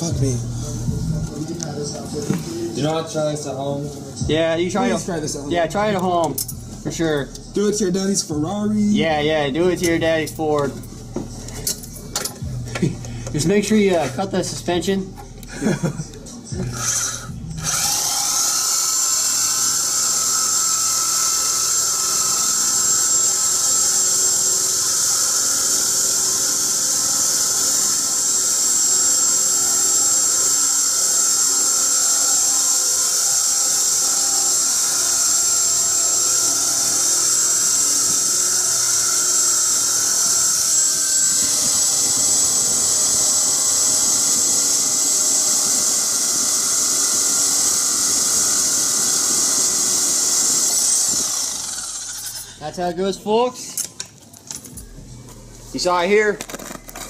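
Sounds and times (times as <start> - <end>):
reciprocating saw cutting metal pipe: 16.6 - 52.9.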